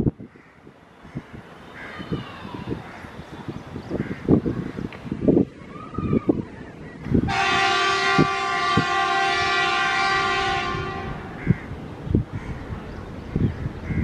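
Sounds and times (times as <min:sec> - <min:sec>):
locomotive horn: 0:07.3 - 0:11.5.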